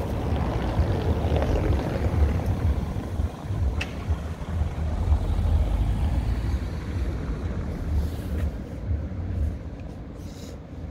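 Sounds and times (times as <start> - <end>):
wind buffeting microphone: 0.0 - 6.0
car driving over cobblestones: 0.0 - 10.0.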